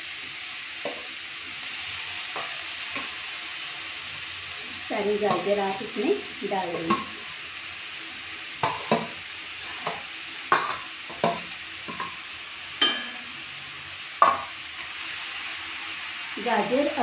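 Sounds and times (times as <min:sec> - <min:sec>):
food sizzling in oil: 0:00.0 - 0:17.0
metal spoon clinking on metal: 0:12.8 - 0:13.2.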